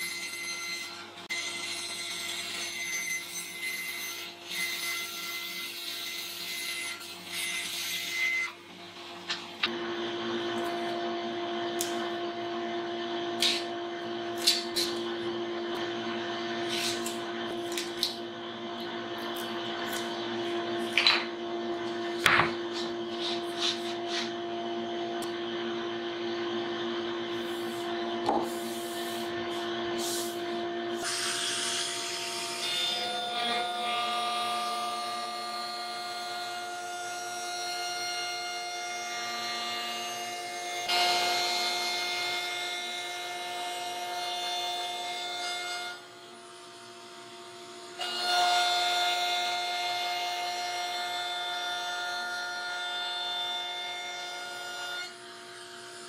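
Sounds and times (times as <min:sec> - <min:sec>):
dust extractor humming: 0:08.6 - 0:35.8.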